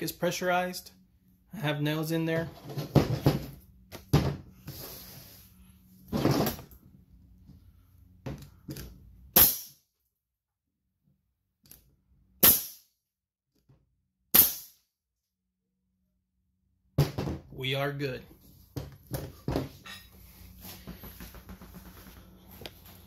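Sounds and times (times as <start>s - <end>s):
nail gun shots: 9.4s - 9.8s, 12.4s - 12.8s, 14.3s - 14.8s.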